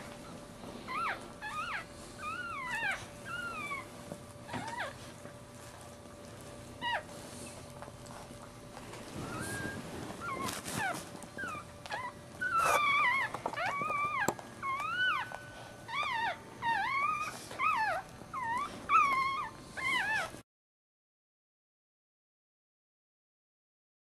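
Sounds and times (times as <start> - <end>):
puppy squealing: 4.5 - 5.0, 9.2 - 20.3.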